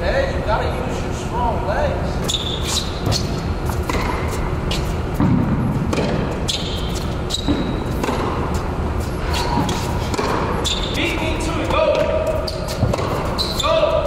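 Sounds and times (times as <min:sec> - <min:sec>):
steady low hum: 0:00.0 - 0:14.0
shoe squeak: 0:02.2 - 0:05.1, 0:06.3 - 0:14.0
tennis balls hitting rackets: 0:02.2 - 0:14.0.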